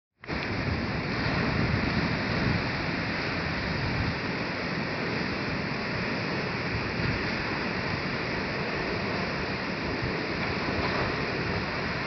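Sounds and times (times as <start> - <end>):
surf washing onto beach: 0.2 - 12.0.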